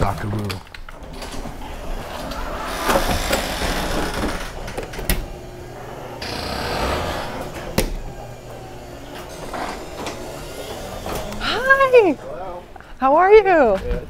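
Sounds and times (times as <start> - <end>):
footsteps walking: 3.4 - 13.0.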